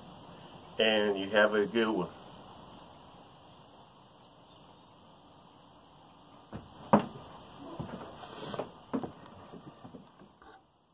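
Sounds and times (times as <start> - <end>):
sharp knocks: 6.5 - 7.2.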